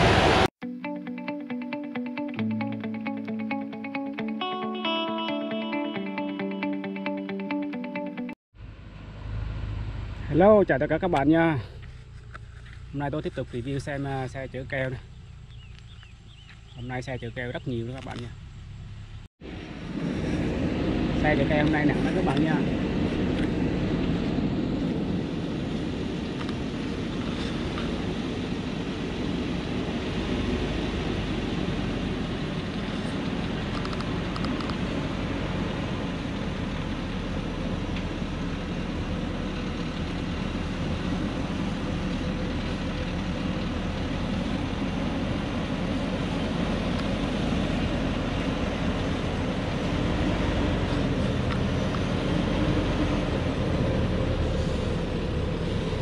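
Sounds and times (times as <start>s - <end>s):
diesel truck engine under load: 17.6s - 56.0s.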